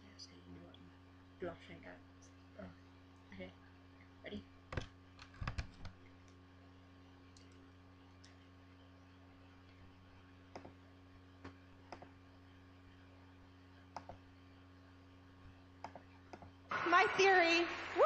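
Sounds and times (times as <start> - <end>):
low hum: 5.8 - 18.0.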